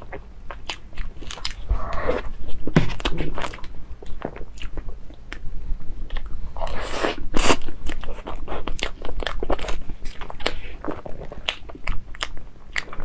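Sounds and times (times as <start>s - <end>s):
person chewing: 0.0s - 13.0s.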